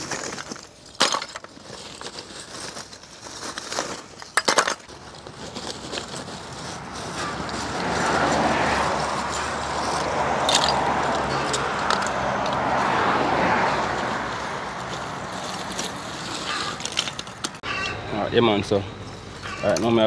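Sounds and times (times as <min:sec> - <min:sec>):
vehicle passing: 0:05.6 - 0:20.0.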